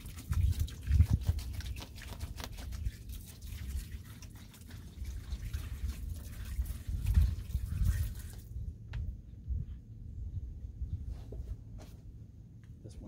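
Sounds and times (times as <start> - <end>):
wind rumble on microphone: 0.0 - 4.0, 4.8 - 12.3
liquid pouring into plastic tub: 0.0 - 8.6.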